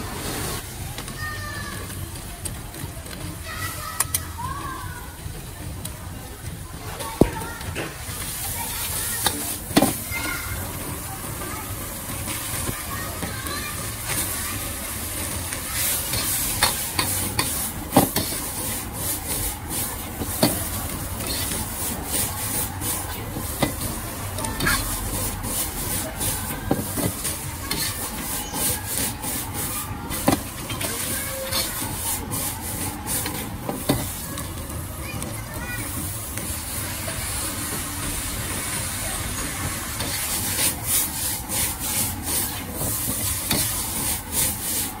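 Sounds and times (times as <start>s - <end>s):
noodles sizzling: 0.0s - 45.0s
metal ladle scraping a wok: 14.0s - 34.4s, 40.0s - 45.0s.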